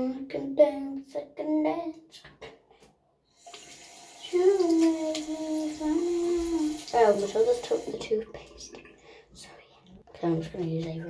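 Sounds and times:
tap water running: 0:03.4 - 0:09.2
girl humming: 0:05.8 - 0:06.7.

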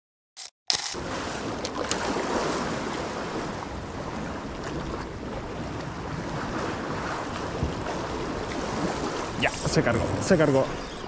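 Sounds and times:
sea water lapping: 0:01.0 - 0:11.0
wind on microphone: 0:01.0 - 0:11.0.

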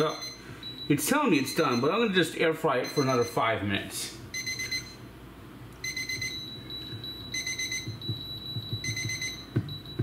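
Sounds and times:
thermometer alarm beeping: 0:00.0 - 0:02.1, 0:02.8 - 0:03.5, 0:04.3 - 0:05.0, 0:05.8 - 0:10.0.

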